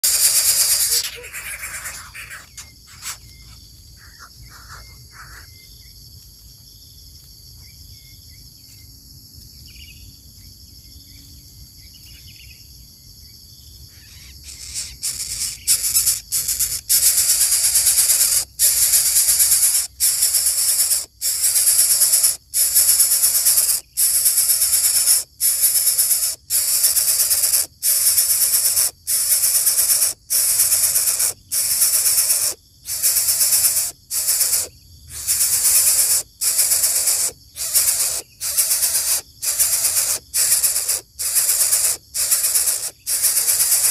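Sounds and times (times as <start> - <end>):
nestlings hissing: 0.0 - 5.5, 14.1 - 43.9
soft chirps: 0.0 - 6.0, 13.7 - 43.9.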